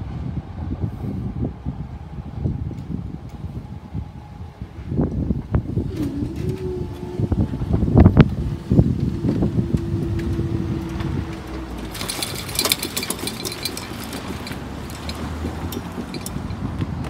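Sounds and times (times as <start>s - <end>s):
barrier mechanism humming: 4.9s - 17.0s
rattling clicks: 10.1s - 17.0s.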